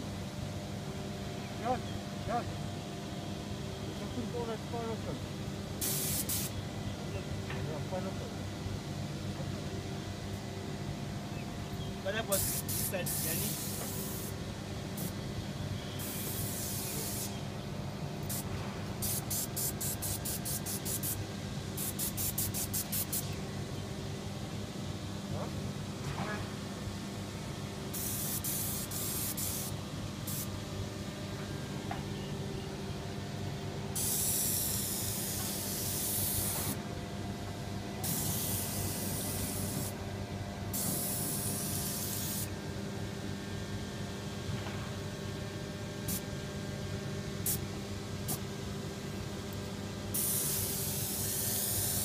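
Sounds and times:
low machine hum: 0:00.0 - 0:05.8, 0:06.4 - 0:52.0
compressed-air blasts hissing: 0:05.8 - 0:06.6, 0:12.1 - 0:15.2, 0:16.0 - 0:17.4, 0:18.2 - 0:23.4, 0:27.9 - 0:30.5, 0:33.9 - 0:36.8, 0:38.0 - 0:40.0, 0:40.7 - 0:42.5, 0:47.4 - 0:47.6, 0:50.1 - 0:52.0.

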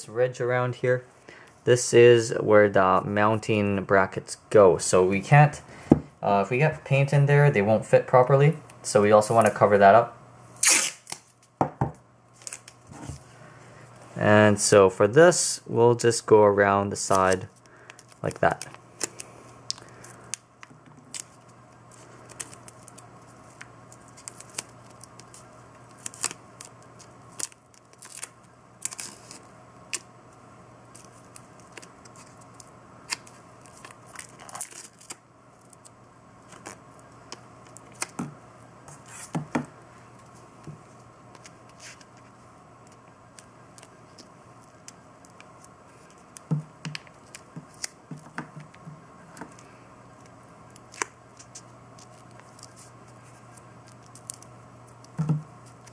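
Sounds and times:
masking tape ripping: 0:10.6 - 0:11.4, 0:23.9 - 0:30.1, 0:30.9 - 0:35.2.

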